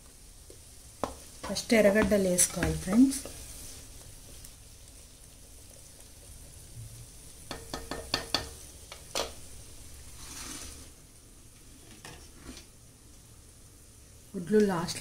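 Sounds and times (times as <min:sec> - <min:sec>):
onions sizzling in oil: 0:00.0 - 0:15.0
metal spoon knocking pot: 0:07.5 - 0:08.6.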